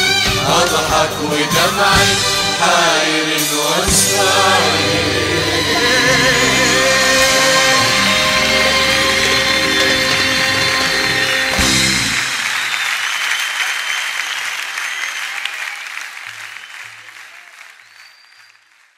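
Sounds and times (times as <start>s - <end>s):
audience applause: 1.5s - 18.9s
music ending on held chord: 4.0s - 12.0s.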